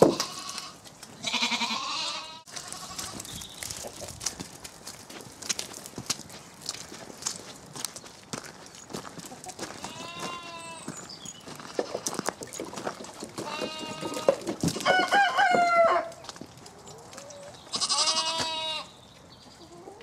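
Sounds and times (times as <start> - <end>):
sheep bleating: 0.1 - 3.2, 9.8 - 10.9, 17.7 - 18.9.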